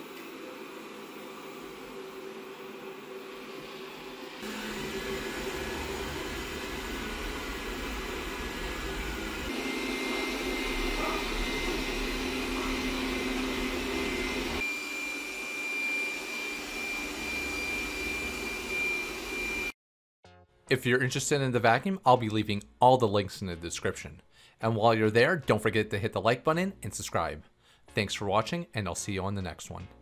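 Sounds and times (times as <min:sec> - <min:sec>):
robot vacuum suction fan: 0:00.0 - 0:19.7.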